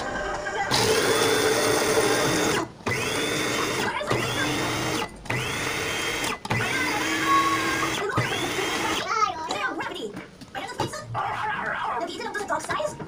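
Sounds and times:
food processor grinding: 0.0s - 9.0s.

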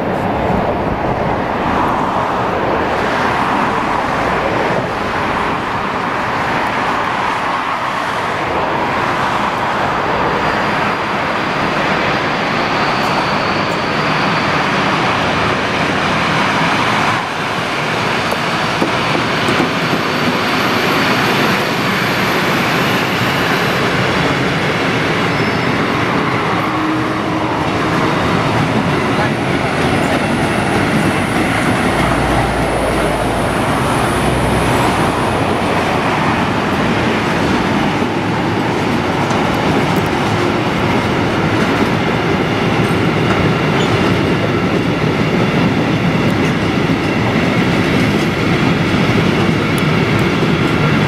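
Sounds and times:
train wagons rolling past: 0.0s - 51.0s
faint high squeal: 12.6s - 14.8s, 25.2s - 27.0s.

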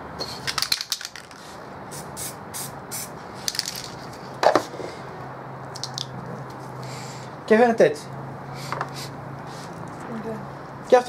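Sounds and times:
cans clicking and knocking: 0.4s - 1.4s, 3.5s - 4.7s, 5.7s - 6.2s
aerosol spray bursts: 1.9s - 3.1s.

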